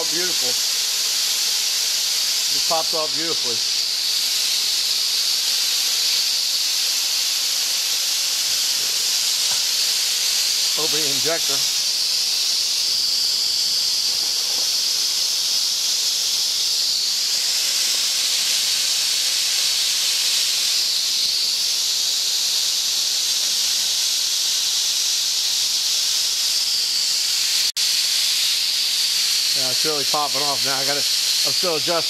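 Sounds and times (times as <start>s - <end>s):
steam hissing from safety valve: 0.0s - 32.0s.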